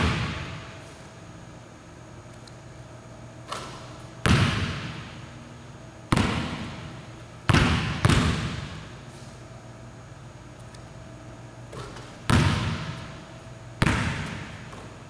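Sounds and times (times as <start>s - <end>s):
basketball bouncing on wooden floor: 3.5s - 5.0s, 6.1s - 8.9s, 11.7s - 15.0s.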